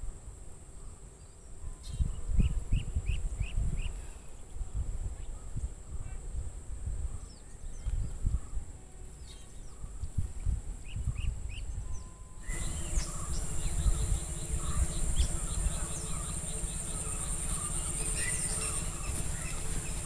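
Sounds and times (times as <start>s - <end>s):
small birds chirping: 7.0s - 20.0s
high insect drone: 12.0s - 20.0s
low rumble: 12.4s - 20.0s.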